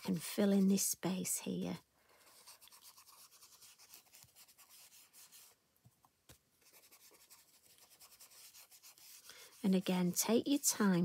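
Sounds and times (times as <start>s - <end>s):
brush strokes on card: 0.0s - 1.0s, 2.2s - 5.6s, 6.6s - 11.0s.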